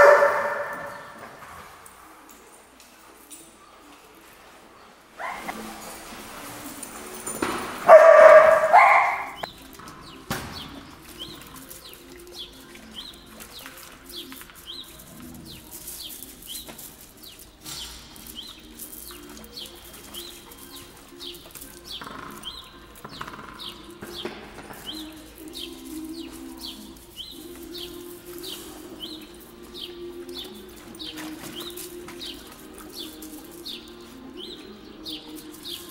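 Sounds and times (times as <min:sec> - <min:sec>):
dog barking: 0:00.0 - 0:01.2, 0:05.2 - 0:05.6, 0:07.8 - 0:09.5.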